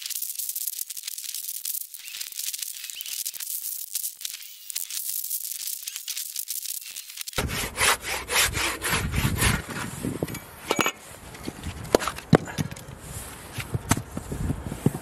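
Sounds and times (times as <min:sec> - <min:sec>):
handsaw cutting log: 0:07.4 - 0:10.2.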